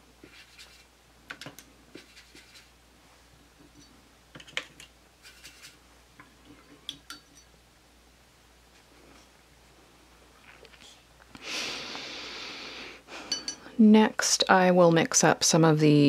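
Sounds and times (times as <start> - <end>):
brush scratching and clicking in palette: 0.2 - 2.7, 3.6 - 5.8.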